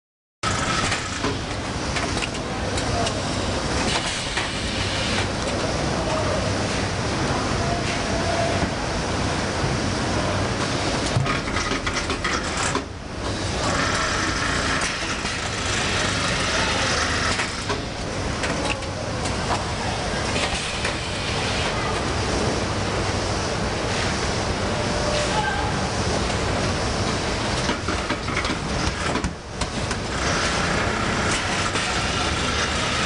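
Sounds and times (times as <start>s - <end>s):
packing machine running: 0.4s - 6.4s, 10.6s - 22.4s, 26.1s - 33.0s.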